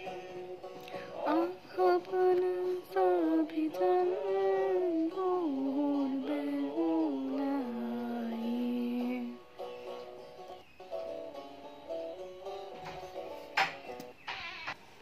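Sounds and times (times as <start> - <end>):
solo voice singing slow melody: 0.0 - 9.4.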